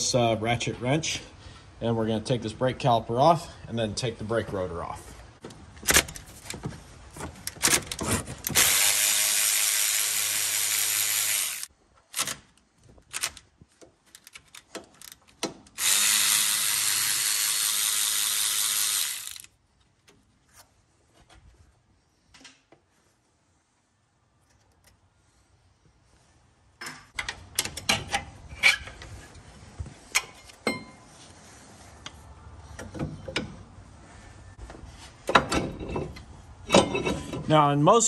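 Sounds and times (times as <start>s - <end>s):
cordless ratchet wrench running: 8.5s - 11.7s, 15.8s - 19.5s.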